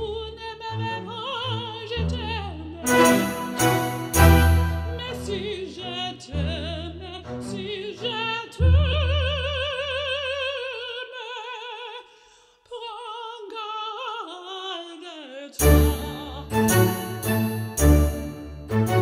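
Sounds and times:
low musical accompaniment: 0.0s - 5.8s, 15.6s - 19.0s.

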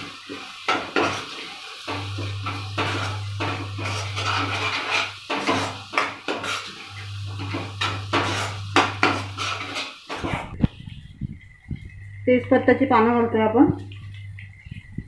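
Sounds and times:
paste frying in oil: 0.0s - 15.0s
spatula scraping pan: 0.2s - 10.6s.

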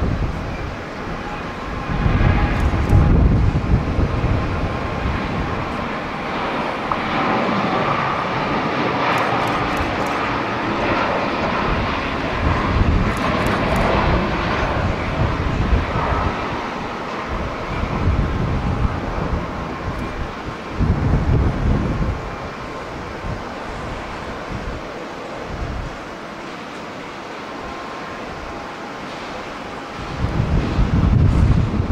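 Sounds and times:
wind rumbling on microphone: 0.0s - 26.4s, 27.6s - 31.9s
jet engine roar: 0.0s - 31.9s.

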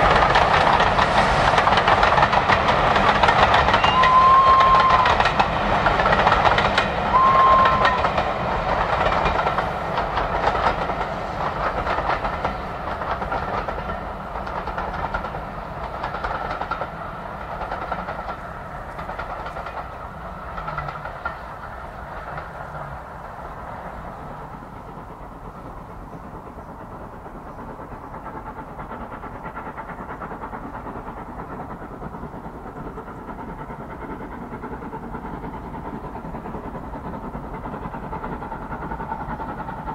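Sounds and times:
train wheels clickety-clack: 0.0s - 39.9s
high train whistle: 3.6s - 5.4s, 7.0s - 8.3s.

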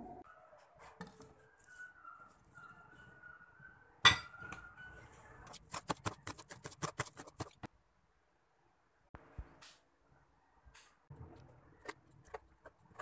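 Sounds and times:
glass bowl clinking: 4.1s - 4.4s.

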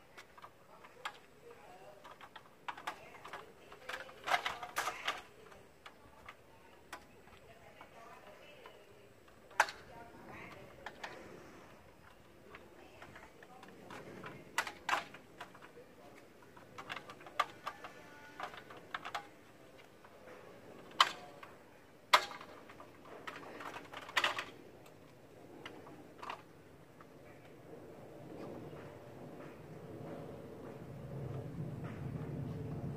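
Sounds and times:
metal ladder rails knocking: 22.1s - 25.0s.

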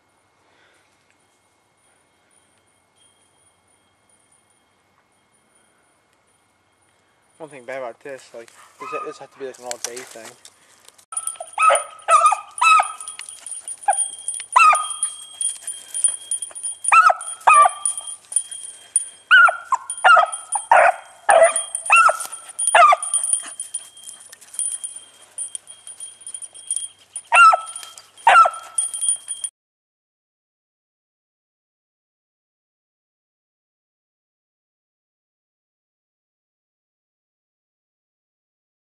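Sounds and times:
hounds baying and barking: 8.5s - 9.8s, 11.2s - 29.5s.

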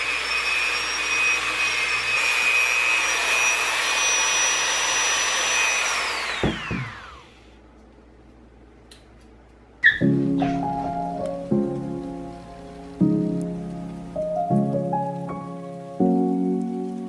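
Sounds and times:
rotary tool whining: 0.0s - 7.5s.

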